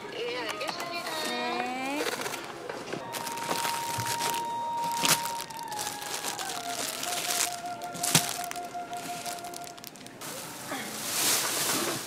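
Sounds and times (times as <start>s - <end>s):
plastic bags crinkling: 3.0s - 12.0s.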